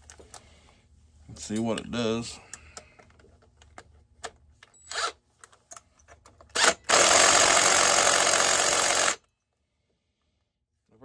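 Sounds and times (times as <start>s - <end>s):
cordless drill spinning engine: 6.5s - 9.2s.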